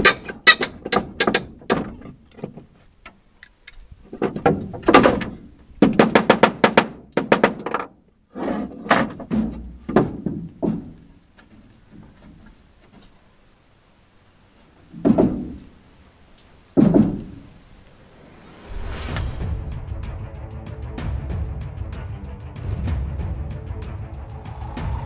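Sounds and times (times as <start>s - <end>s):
hammer nailing wood: 0.0s - 2.1s, 4.2s - 7.9s.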